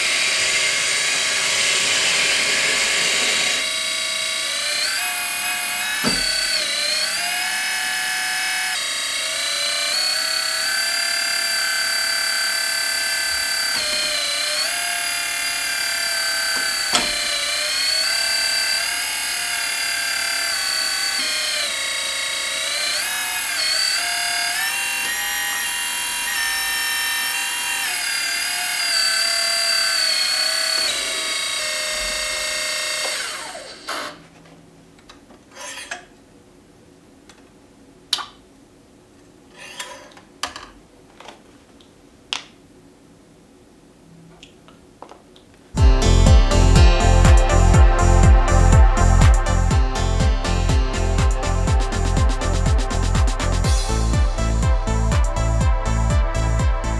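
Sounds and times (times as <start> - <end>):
hydraulic pump motor whining: 0.0 - 34.2.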